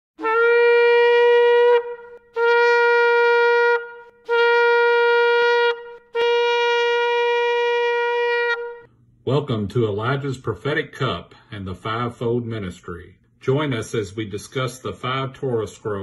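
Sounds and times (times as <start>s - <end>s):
ram's horn blasts: 0.2s - 8.9s.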